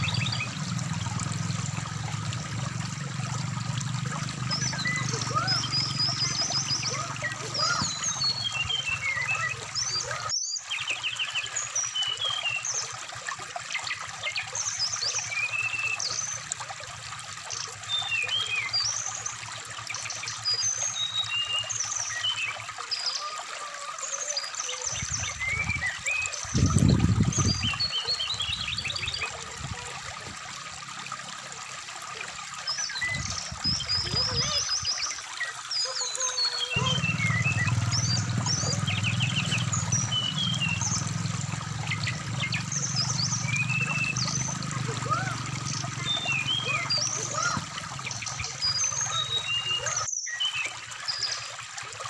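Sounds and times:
stream rushing: 0.0s - 10.2s, 25.0s - 50.1s
bird song chirps and whistles: 4.5s - 12.8s, 25.0s - 29.3s, 41.9s - 44.5s, 45.7s - 51.4s.

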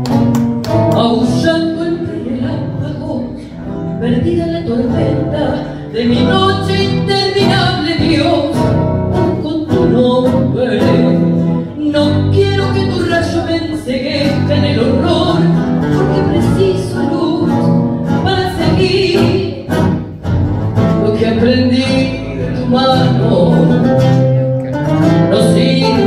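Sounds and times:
acoustic guitar: 0.0s - 26.0s
woman singing into a microphone: 0.8s - 20.0s, 20.8s - 24.2s, 25.1s - 26.0s.

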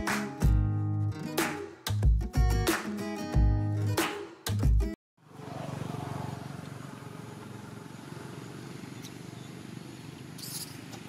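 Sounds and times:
engine idling: 5.3s - 10.3s.

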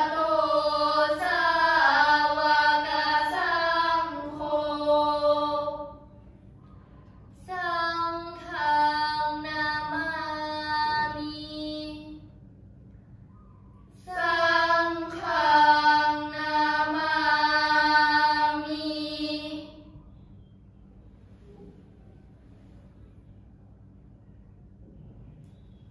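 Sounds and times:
girls chanting in unison: 0.0s - 6.1s, 7.4s - 12.2s, 14.0s - 19.8s.

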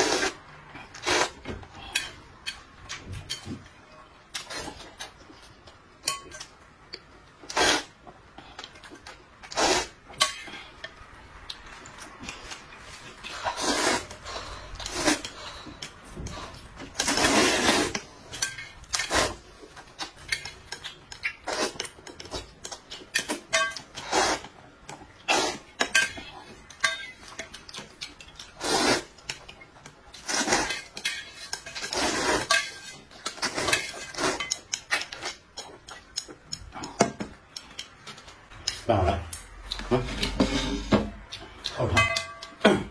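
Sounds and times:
noodles being slurped: 0.0s - 1.4s, 7.4s - 8.0s, 9.4s - 10.0s, 13.3s - 15.6s, 16.5s - 18.1s, 25.2s - 25.7s, 28.4s - 29.2s, 30.2s - 30.9s, 31.7s - 32.6s
utensils clinking on metal bowl: 20.0s - 24.1s, 25.6s - 28.6s, 29.2s - 39.5s, 40.1s - 42.7s.

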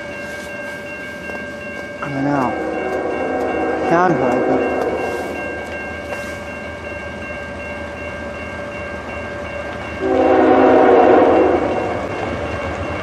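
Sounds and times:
locomotive air horn chord: 3.0s - 5.4s, 10.0s - 11.9s.

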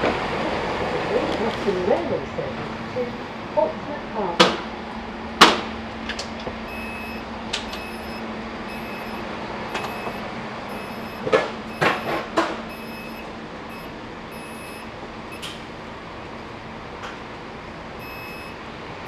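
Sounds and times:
train low hum: 0.0s - 19.0s
train door warning beeps: 6.7s - 15.6s, 18.0s - 18.7s.

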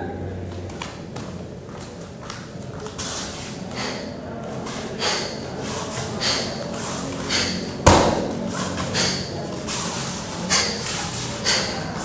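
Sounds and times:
sharp thump: 7.8s - 8.5s.

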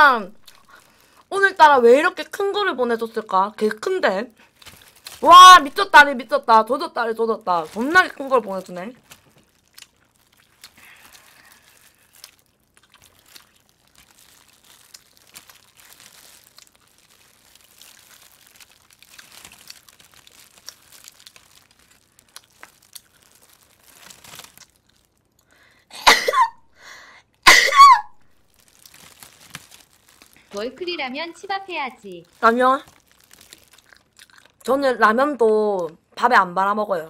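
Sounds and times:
plastic gloves and foil crinkling: 0.0s - 25.9s, 27.2s - 35.9s
person coughing: 25.9s - 26.6s, 27.4s - 28.1s.

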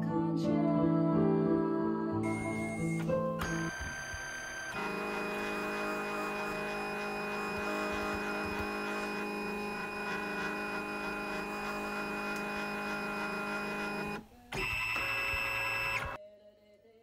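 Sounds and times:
scanner motor whirring: 2.2s - 16.2s.

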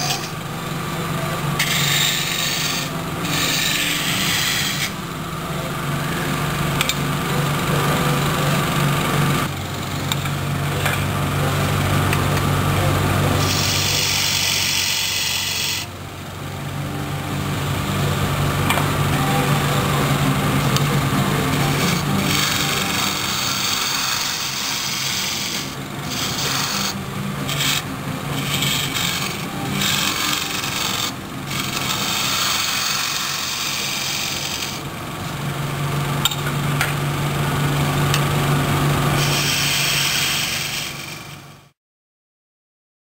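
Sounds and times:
turning tool scraping wood: 0.0s - 0.9s, 1.5s - 5.0s, 13.3s - 15.9s, 19.1s - 34.9s, 39.2s - 41.4s
wood lathe humming: 0.0s - 41.6s.

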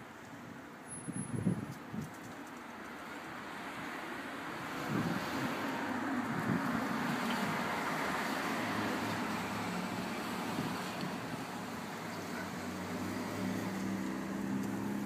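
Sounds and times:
low traffic hum: 0.0s - 15.0s
cars passing: 2.4s - 15.0s.

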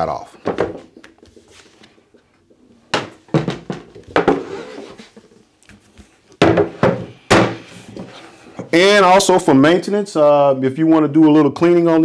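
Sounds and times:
plastic folding chair knocks: 2.9s - 4.5s, 6.4s - 7.6s.

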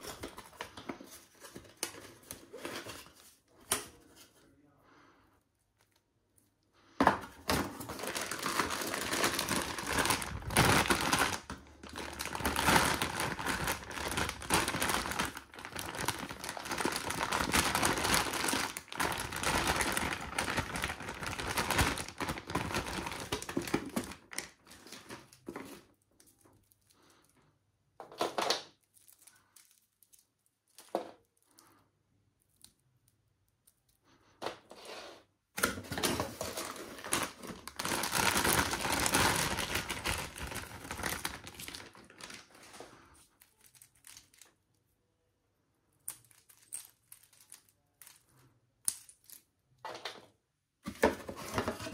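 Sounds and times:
plastic bag crinkling: 7.4s - 27.2s, 35.8s - 44.6s, 46.1s - 48.4s.

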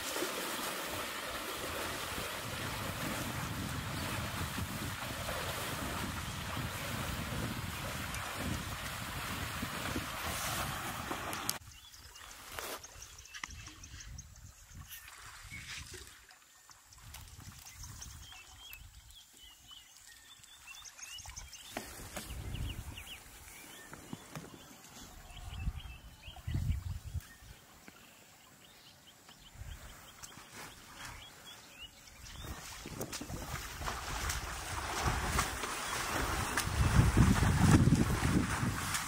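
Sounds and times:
wind buffeting microphone: 1.7s - 11.8s, 21.9s - 23.4s, 24.0s - 27.4s, 32.2s - 39.0s
small birds chirping: 17.4s - 33.4s
snaps and rustles in grass: 21.7s - 25.1s.

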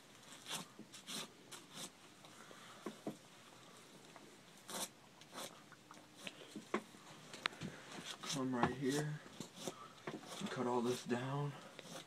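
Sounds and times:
knife rasping through membrane: 0.3s - 2.0s, 4.7s - 5.6s, 8.1s - 12.0s.

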